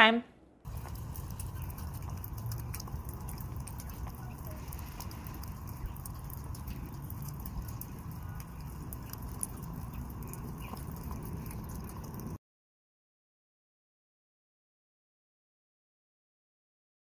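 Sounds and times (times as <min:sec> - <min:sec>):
low rumble: 0:00.0 - 0:12.4
water dripping down metal chain: 0:00.7 - 0:12.4.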